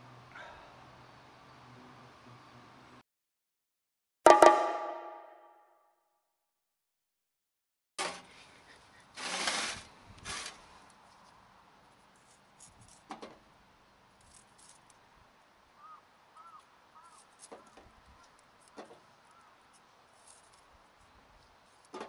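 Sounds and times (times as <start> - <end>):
loud rustle: 9.2 - 10.7.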